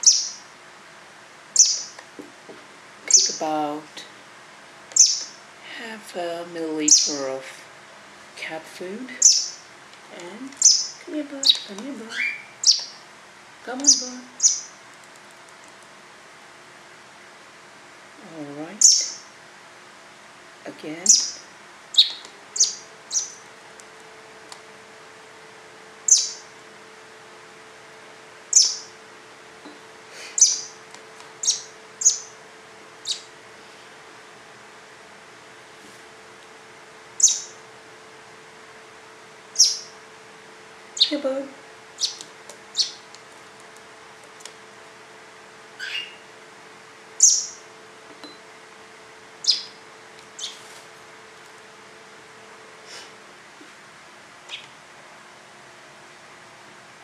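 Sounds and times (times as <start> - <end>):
baby bird chirping: 0.0 - 0.5, 1.6 - 2.0, 3.1 - 3.5, 4.9 - 5.4, 6.9 - 7.2, 9.2 - 9.7, 10.6 - 13.0, 13.8 - 14.8, 18.8 - 19.3, 21.0 - 23.5, 26.0 - 26.5, 28.5 - 28.9, 30.4 - 30.8, 31.4 - 32.4, 33.0 - 33.3, 37.2 - 37.6, 39.5 - 39.9, 41.0 - 41.2, 42.0 - 43.0, 45.8 - 46.2, 47.2 - 47.6, 49.4 - 49.8, 50.4 - 50.6, 54.5 - 54.7
faint steady hum: 0.0 - 57.0.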